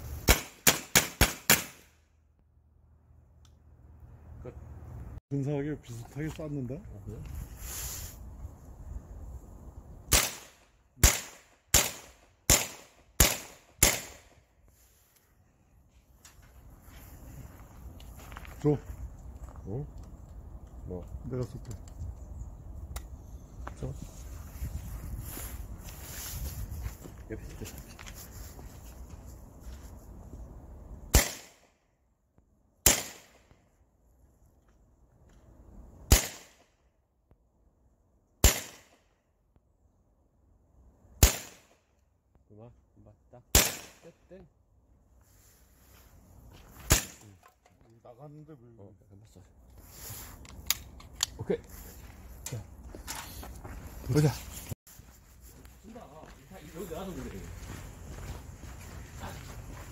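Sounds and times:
air pistol shots: 0.2 - 1.9, 10.1 - 14.4, 31.1 - 31.7, 32.8 - 33.5, 36.1 - 36.7, 38.4 - 39.0, 41.2 - 41.8, 43.5 - 44.0, 46.9 - 47.2.

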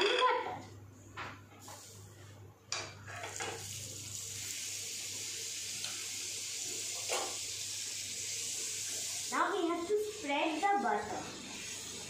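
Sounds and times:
butter sizzling: 3.1 - 12.0.

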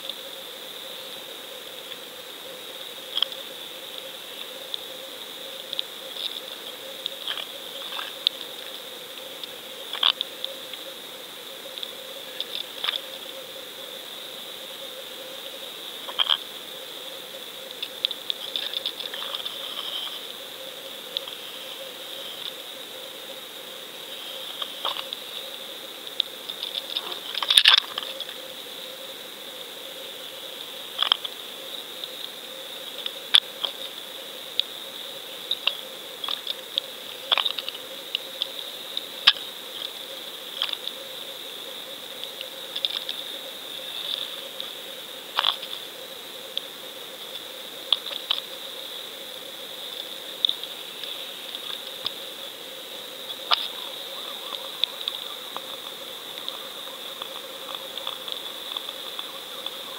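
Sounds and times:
sharp underwater clicks: 9.4 - 10.8.

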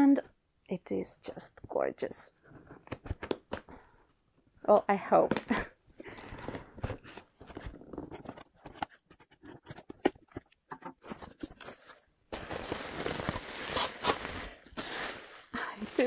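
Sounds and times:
packing material rustling: 6.2 - 16.0.

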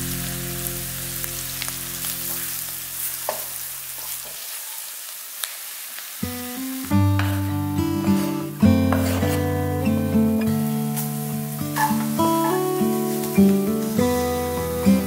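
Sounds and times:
food sizzling in a wok: 0.0 - 15.0
wooden spatula scraping: 8.0 - 9.6
spatula knocking pan: 8.9 - 9.3.

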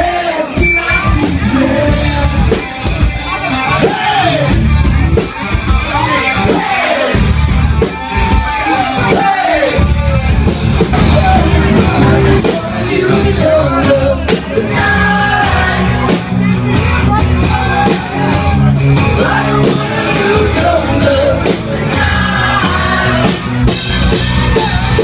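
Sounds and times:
person singing: 0.0 - 2.7, 11.0 - 25.0
heavy bass: 0.0 - 25.0
steady drumbeat: 0.0 - 25.0.

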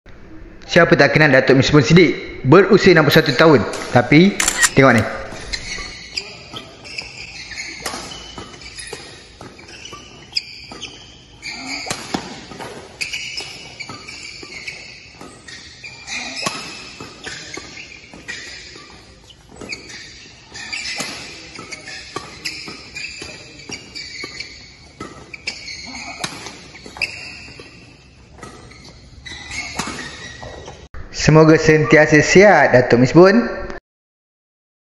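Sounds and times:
shoes squeaking on court: 3.0 - 30.9.

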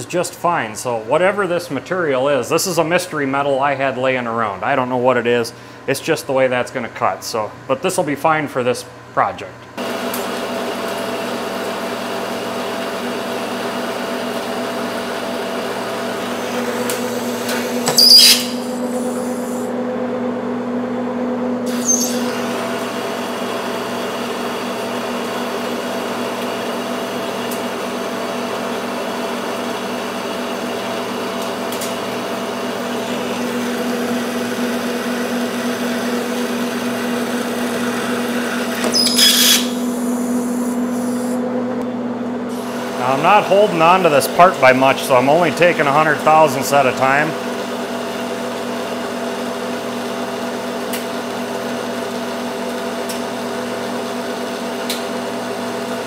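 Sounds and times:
lathe gear hum: 21.7 - 38.8.

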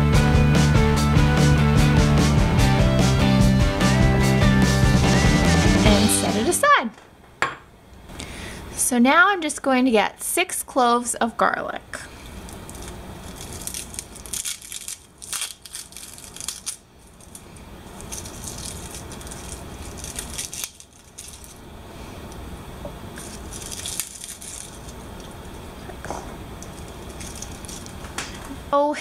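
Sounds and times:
garlic skin crackling: 12.2 - 21.6, 23.2 - 25.6, 26.6 - 28.2.

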